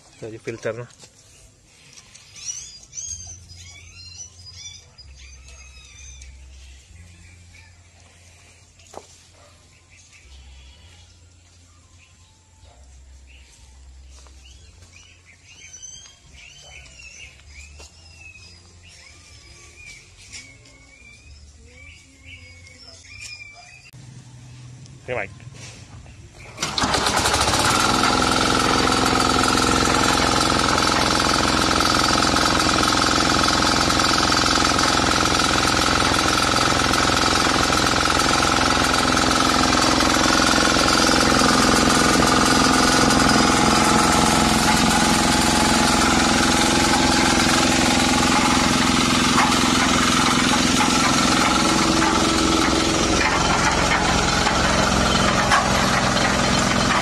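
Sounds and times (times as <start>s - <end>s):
diesel engine starting and running: 23.8s - 57.0s.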